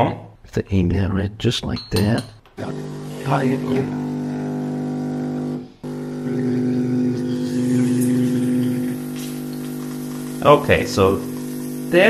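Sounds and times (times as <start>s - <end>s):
coffee hissing through basket: 2.6s - 12.0s
espresso machine pump humming: 2.6s - 12.0s.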